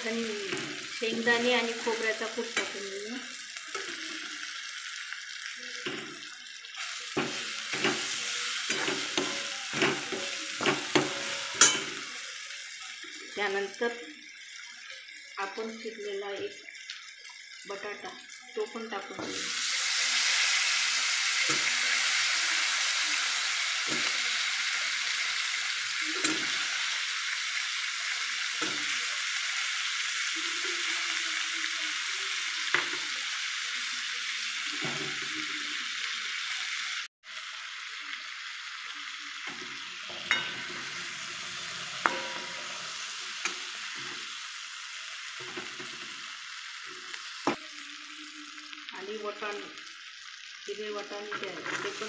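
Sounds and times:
potato sizzling in oil: 0:00.0 - 0:52.0
metal ladle scraping pan: 0:07.2 - 0:12.0, 0:39.5 - 0:44.2, 0:51.3 - 0:52.0.

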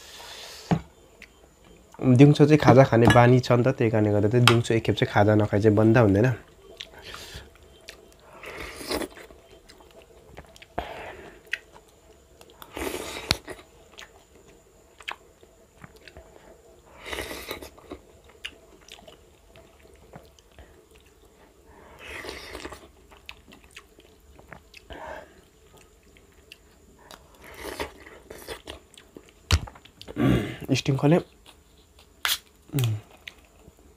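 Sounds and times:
person chewing food: 0:06.4 - 0:30.4, 0:31.3 - 0:33.8.

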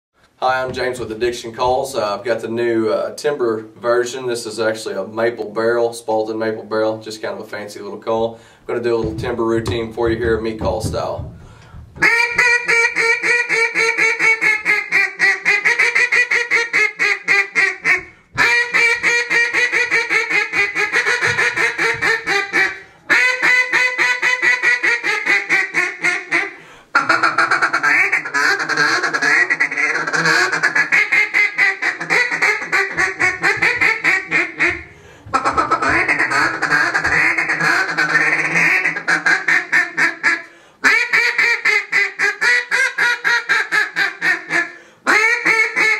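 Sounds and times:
duck call rapid quacks: 0:12.0 - 0:45.9.

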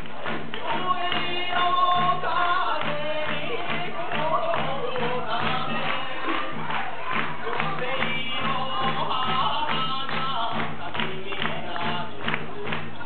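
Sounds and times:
quick steady drumbeat: 0:00.0 - 0:13.0
person singing: 0:00.4 - 0:13.0.

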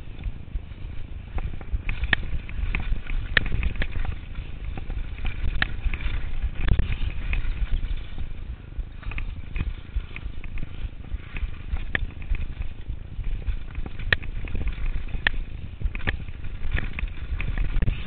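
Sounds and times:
wind rumbling on microphone: 0:00.0 - 0:18.0
mountain bike clattering over rocks: 0:00.1 - 0:18.0.

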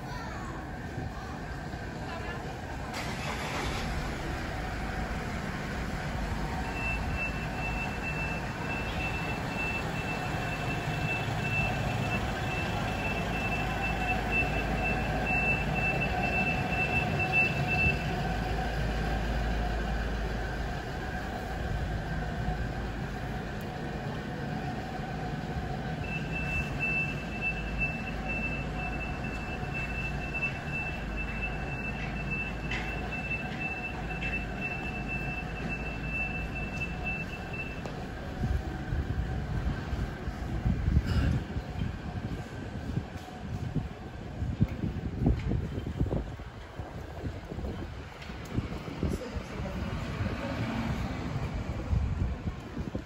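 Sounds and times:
reversing alarm beeping: 0:06.4 - 0:18.6, 0:25.8 - 0:38.3.

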